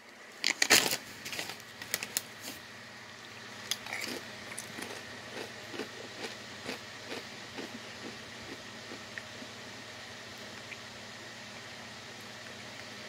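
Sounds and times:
chewing crunchy potato chips: 3.6 - 9.6.

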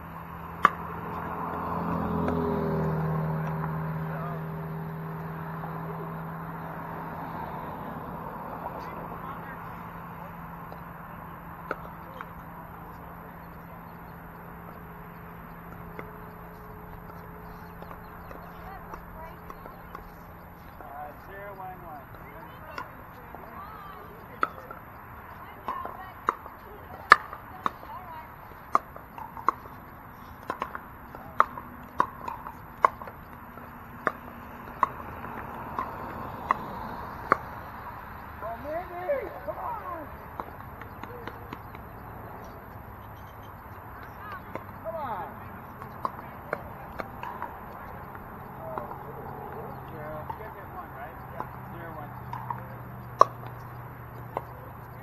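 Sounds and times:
pickleball paddle hits: 0.5 - 1.6, 11.6 - 14.8, 24.2 - 28.0, 28.6 - 37.6, 43.7 - 50.6, 51.4 - 54.6.

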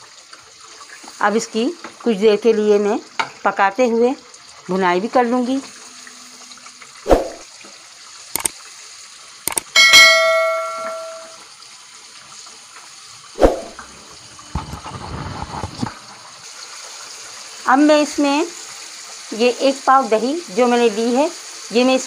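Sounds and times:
sharp clicks: 9.5 - 9.7
ringing bell chime: 9.8 - 11.4
wooden spoon scraping a pan: 14.6 - 16.0.

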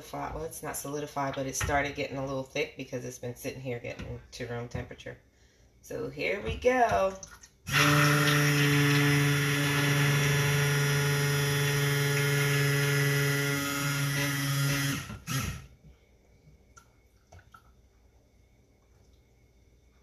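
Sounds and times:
stick blender running: 7.7 - 15.7.

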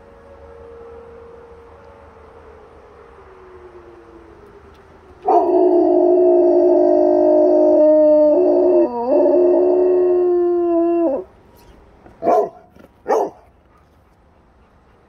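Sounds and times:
dog howling: 5.2 - 11.3
dog barking: 12.2 - 13.5.

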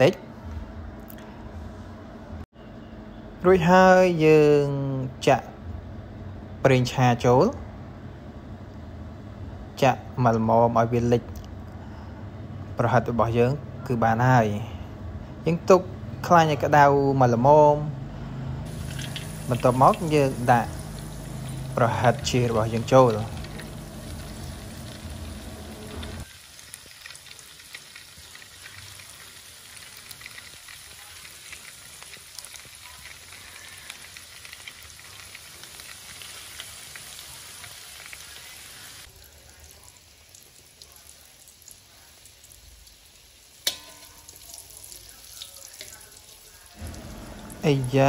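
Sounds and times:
deep-frying oil sizzling: 18.6 - 48.0
metal tongs clinking on wok: 43.6 - 44.4.

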